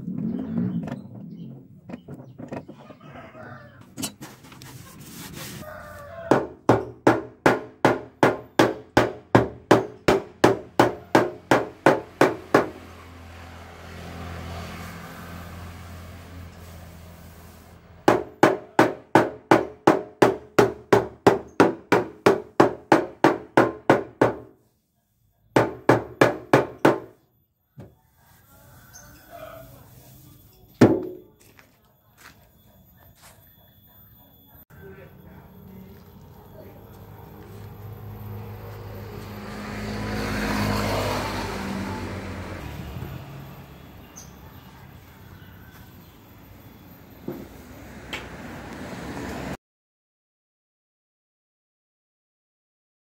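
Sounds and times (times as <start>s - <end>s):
vehicle driving past: 0.0s - 2.1s, 10.7s - 18.1s, 35.4s - 49.6s
wood block striking metal door: 6.3s - 12.8s, 18.1s - 24.5s, 25.6s - 27.2s, 30.8s - 31.3s.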